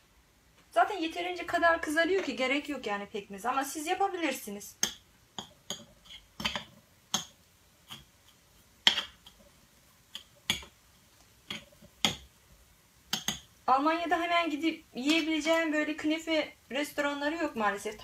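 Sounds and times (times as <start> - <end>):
fork scraping metal tray: 5.7 - 6.7.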